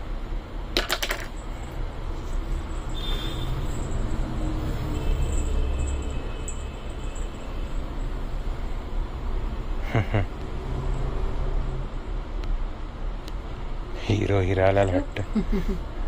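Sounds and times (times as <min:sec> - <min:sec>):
small bells jingling: 0:01.3 - 0:08.6.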